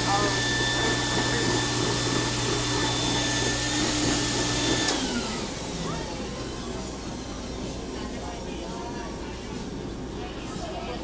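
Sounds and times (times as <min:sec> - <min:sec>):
stuffing machine blower whining: 0:00.0 - 0:08.4.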